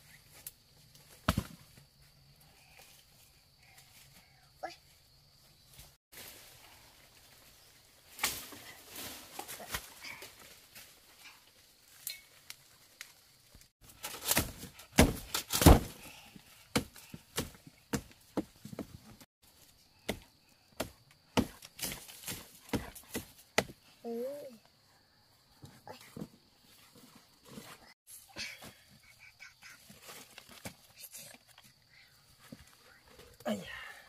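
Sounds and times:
hand tool chopping into soil: 13.9 - 18.5, 20.0 - 23.8.

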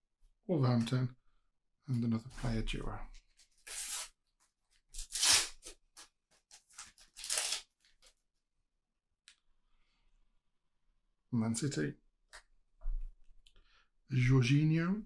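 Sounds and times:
paper tearing: 3.6 - 4.2, 4.9 - 8.1
paper crinkles: 5.0 - 8.2.

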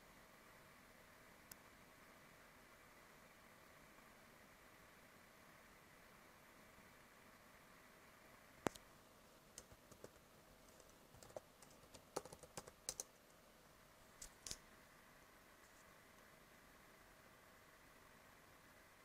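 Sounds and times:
laptop keyboard typing: 9.5 - 13.2, 14.2 - 14.6.

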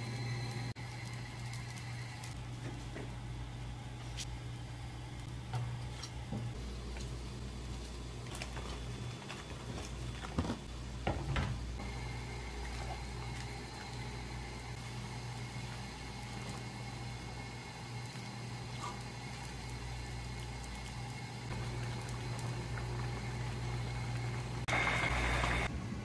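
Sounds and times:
broth simmering: 0.0 - 26.0
steady low hum: 0.0 - 26.0.

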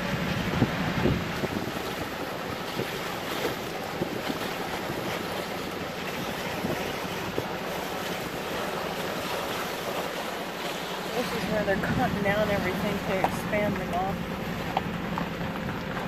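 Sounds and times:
wind on microphone: 0.0 - 8.6.

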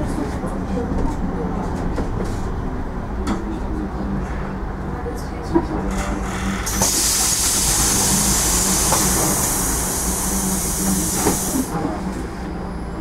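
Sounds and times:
compressed air hissing: 6.7 - 11.7.

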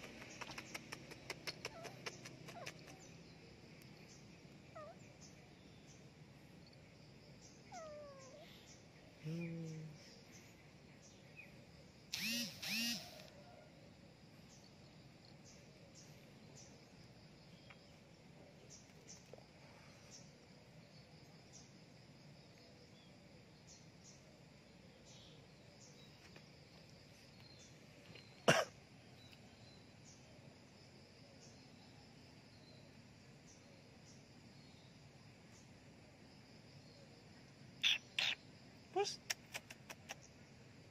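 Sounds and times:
faint high chirps: 0.1 - 13.7.

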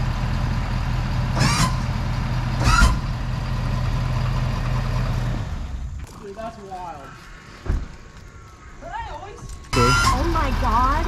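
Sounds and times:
diesel engine idling: 0.0 - 6.0, 9.8 - 11.0.

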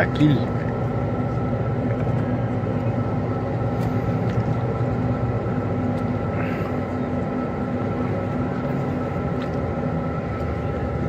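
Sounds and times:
vehicle engine and cabin hum: 0.0 - 11.0.

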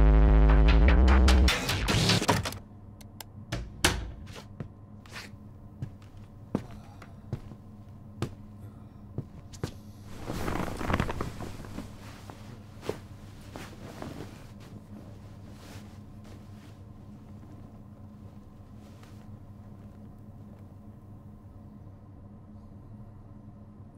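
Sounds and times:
slow footsteps: 4.3 - 8.5
sheets rustling: 10.1 - 19.3.

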